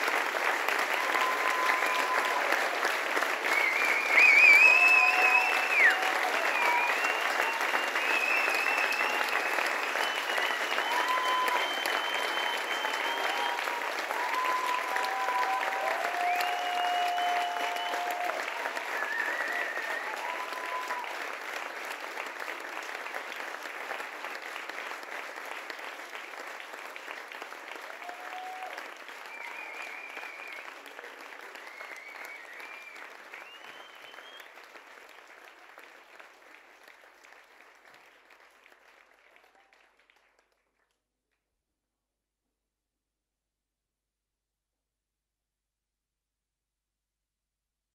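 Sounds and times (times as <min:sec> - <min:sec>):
scattered cheers: 0:00.0 - 0:21.6, 0:27.7 - 0:34.4
audience applauding: 0:00.0 - 0:41.0.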